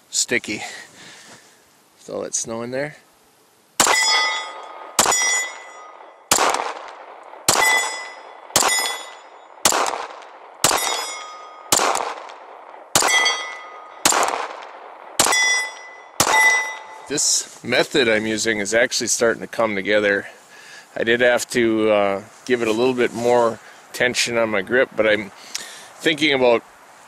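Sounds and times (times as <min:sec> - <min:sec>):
steel target ringing: 0:03.8 - 0:06.6, 0:07.5 - 0:09.9, 0:10.6 - 0:12.0, 0:13.0 - 0:14.4, 0:15.2 - 0:17.2
pistol shots: 0:03.8 - 0:17.1.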